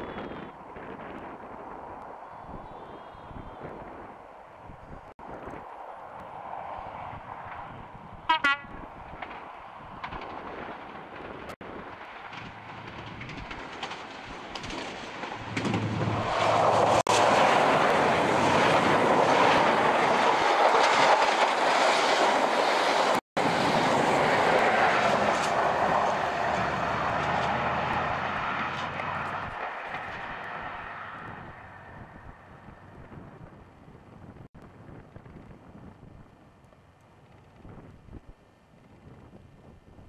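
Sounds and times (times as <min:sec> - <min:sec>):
diesel train passing: 0:05.8 - 0:32.9
train wheels on rails: 0:09.1 - 0:31.2.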